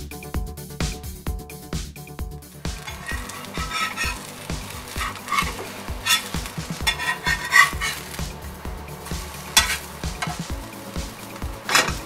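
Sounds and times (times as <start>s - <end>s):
background music with steady beat: 0.0s - 12.0s
metal spatula scraping a griddle: 2.7s - 8.4s, 9.0s - 10.6s, 11.6s - 12.0s
butter sizzling: 2.7s - 12.0s.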